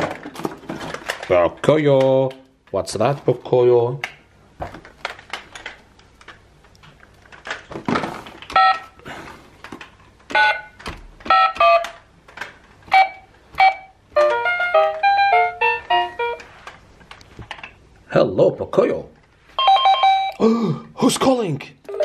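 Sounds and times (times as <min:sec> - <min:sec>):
box handling clicks and thump: 0:00.0 - 0:01.3, 0:07.0 - 0:10.0
toy keypad beeps: 0:08.5 - 0:08.9, 0:10.3 - 0:12.0, 0:12.9 - 0:16.4, 0:19.6 - 0:20.4.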